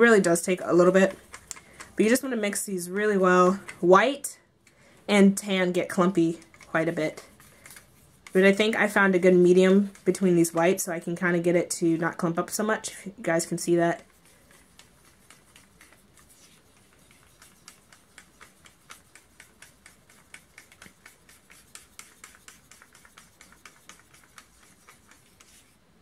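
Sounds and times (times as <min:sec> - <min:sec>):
stick scraping plastic cup: 0:00.6 - 0:02.3, 0:05.8 - 0:10.8, 0:14.0 - 0:25.8.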